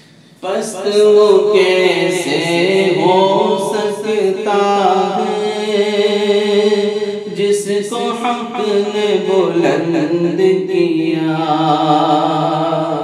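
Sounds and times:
man singing: 0:00.4 - 0:13.0.

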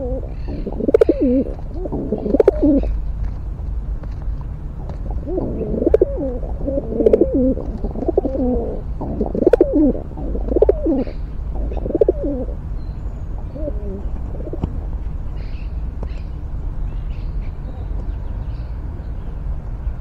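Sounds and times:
pigeon cooing: 0:00.0 - 0:03.0, 0:04.8 - 0:12.6, 0:13.3 - 0:14.8.

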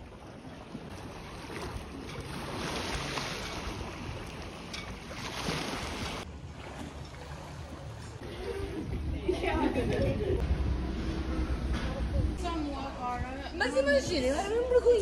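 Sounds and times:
waves lapping on stone shore: 0:00.0 - 0:08.7
wind on microphone: 0:07.6 - 0:14.6.

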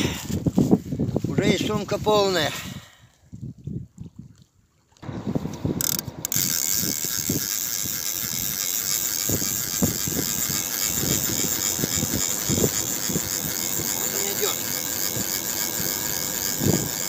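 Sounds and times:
fishing reel gear whirr: 0:05.2 - 0:17.0.

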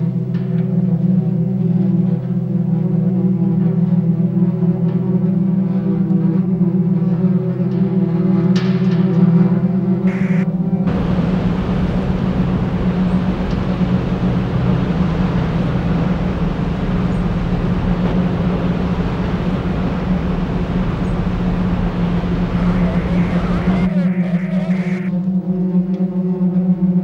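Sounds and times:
loud low rumble with deep hum: 0:10.1 - 0:25.1
sustained musical tones: 0:10.1 - 0:25.1.

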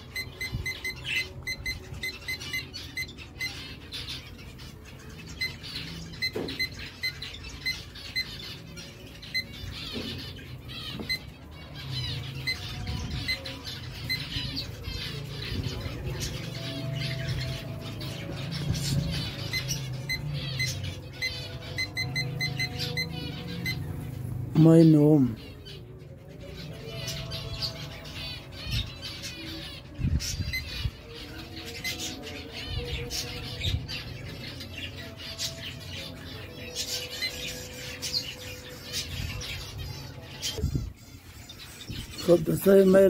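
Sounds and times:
short electronic beeps: 0:00.0 - 0:03.6, 0:19.4 - 0:23.9
cage birds chirping: 0:00.0 - 0:43.0.

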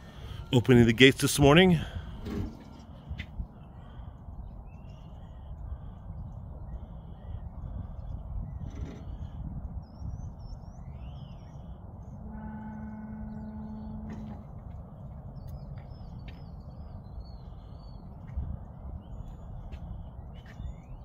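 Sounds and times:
steady hum: 0:01.4 - 0:21.0
low rumble: 0:02.0 - 0:21.0
small birds chirping: 0:03.0 - 0:12.2, 0:14.8 - 0:21.0.

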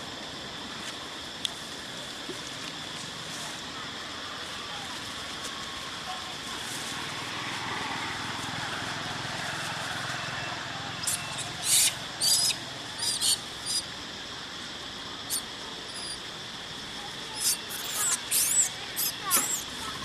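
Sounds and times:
baby monkey shrill squeaks: 0:11.0 - 0:13.8, 0:15.3 - 0:16.2, 0:17.4 - 0:19.7.

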